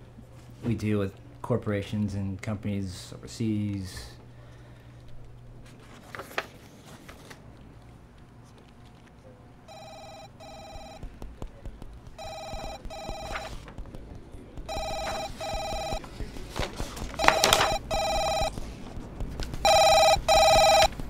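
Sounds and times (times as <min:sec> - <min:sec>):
paper pages turning: 0:05.6 - 0:07.6, 0:13.2 - 0:15.2, 0:16.0 - 0:19.6
telephone double ring: 0:09.7 - 0:11.0, 0:12.2 - 0:13.5, 0:14.7 - 0:16.0, 0:17.2 - 0:18.5, 0:19.6 - 0:20.9.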